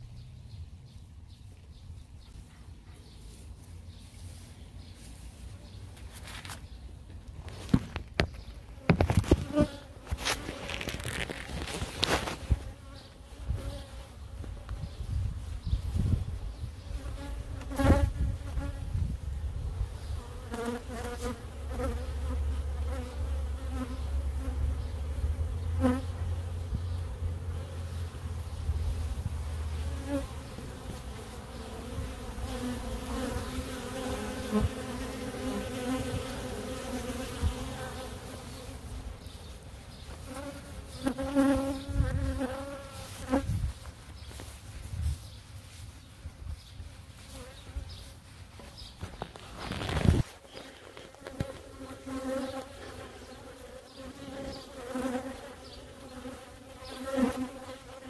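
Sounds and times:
bees buzzing: 7.7s - 19.0s, 19.7s - 43.6s, 47.2s - 58.0s.

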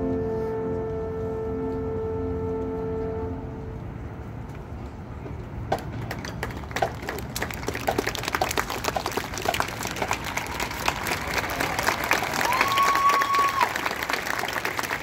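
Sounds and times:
audience applause: 6.1s - 15.0s
low crowd murmur: 6.6s - 15.0s.

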